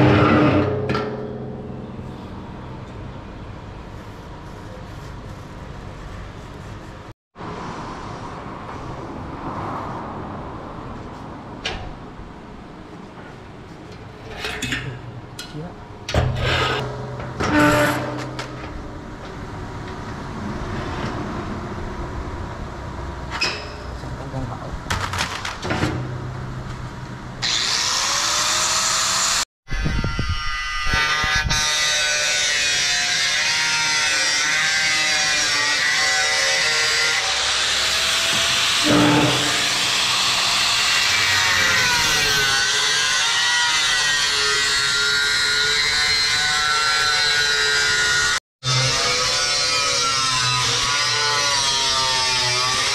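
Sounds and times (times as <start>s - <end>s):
workshop hum and hiss: 0.6s - 10.0s, 31.7s - 41.6s
angle grinder grinding metal: 27.4s - 52.9s.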